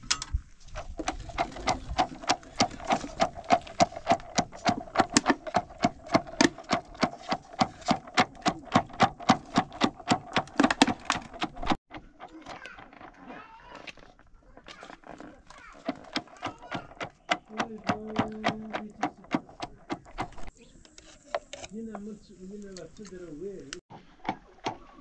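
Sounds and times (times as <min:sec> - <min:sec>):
stick knocking in plastic bottle: 0:00.8 - 0:13.2, 0:14.6 - 0:20.5.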